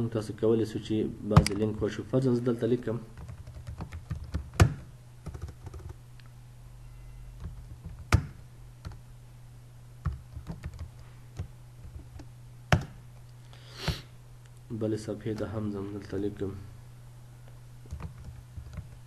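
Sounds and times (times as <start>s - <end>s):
steady low hum: 0.0s - 19.0s
keyboard typing clicks: 3.2s - 6.0s, 7.4s - 9.0s, 10.0s - 13.0s, 17.9s - 19.0s.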